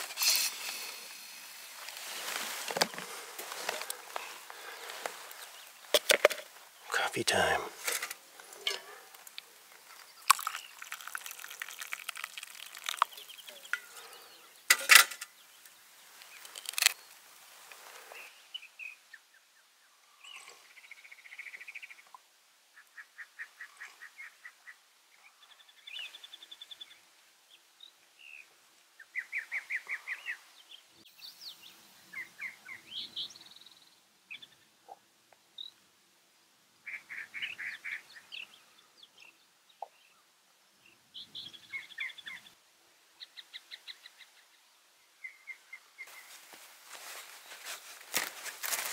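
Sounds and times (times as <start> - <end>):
songbirds trilling and chirping: 0.0 - 35.9, 36.7 - 48.9
water poured into a cup: 10.0 - 13.5.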